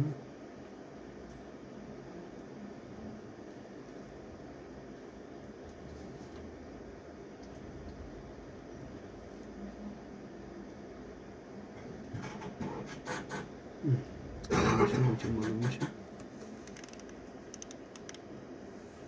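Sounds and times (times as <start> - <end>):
low human vocal sound: 13.8 - 14.6
light clicks and scratching: 16.2 - 18.2.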